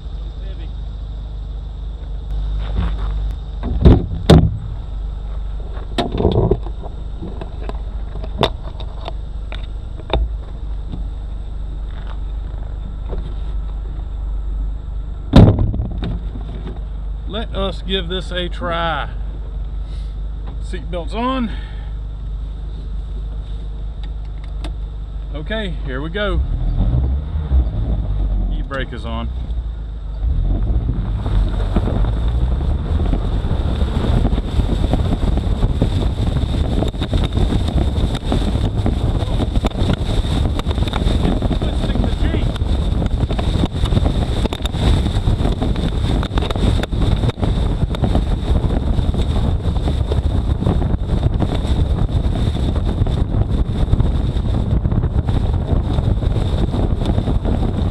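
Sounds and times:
car engine idling: 0.0s - 57.9s
tyres on gravel: 2.0s - 14.0s
wind buffeting microphone: 2.3s - 5.2s, 5.9s - 11.1s, 15.3s - 16.4s, 26.0s - 57.9s
loud thump of driver sitting: 2.7s - 4.8s, 15.3s - 16.8s.

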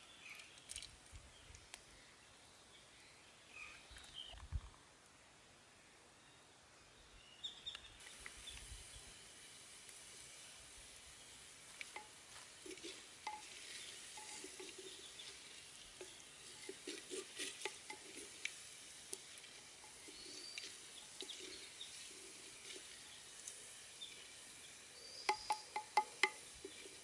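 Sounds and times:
wood fire crackling: 8.0s - 27.0s
soup bubbling: 10.8s - 27.0s
spatula knocking on clay pot: 25.3s - 26.8s.

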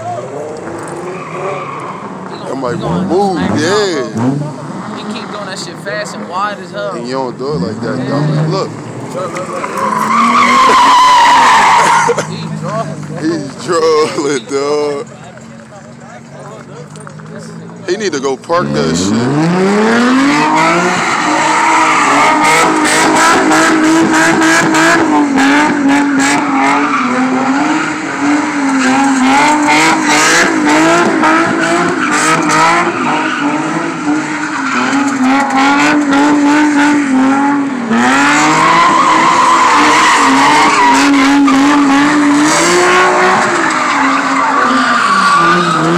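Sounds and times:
car engine revving high: 0.0s - 15.1s, 18.1s - 45.9s
tyres squealing: 9.2s - 17.6s, 19.9s - 37.0s, 38.1s - 45.9s.

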